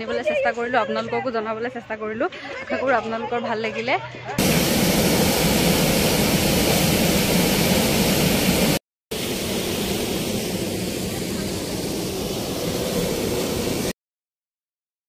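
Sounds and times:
waterfall roaring: 0:04.4 - 0:13.9.

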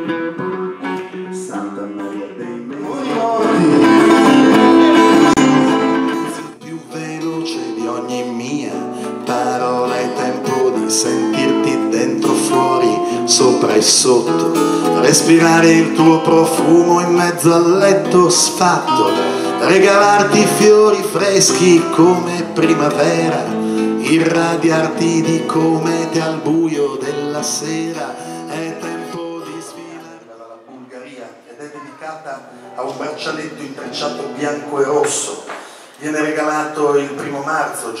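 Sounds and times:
acoustic guitars strummed and picked: 0:00.0 - 0:30.3
accordion: 0:03.0 - 0:06.6.

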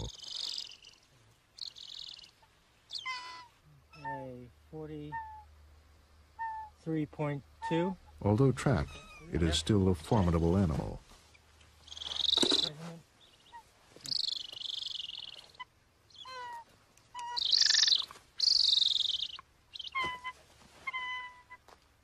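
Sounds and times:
eagle whistled yelps: 0:13.5 - 0:16.6, 0:17.2 - 0:20.3.

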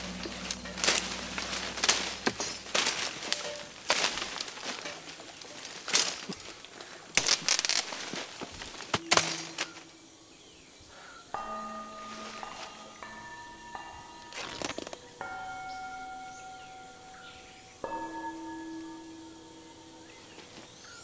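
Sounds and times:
sustained music chord: 0:00.0 - 0:05.1, 0:09.0 - 0:21.0
leaves and branches rustling and snapping: 0:00.0 - 0:10.0, 0:14.2 - 0:15.1.

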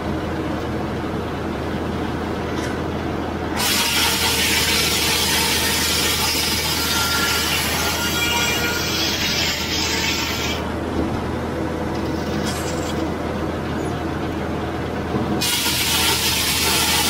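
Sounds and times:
machinery humming: 0:00.0 - 0:17.0
circular saw blade cutting log: 0:03.6 - 0:10.7, 0:15.4 - 0:17.0.

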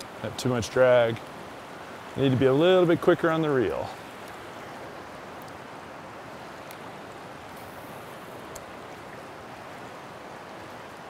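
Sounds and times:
river flowing over stones: 0:00.0 - 0:11.0
faint ticks: 0:05.4 - 0:05.6, 0:08.4 - 0:08.7.

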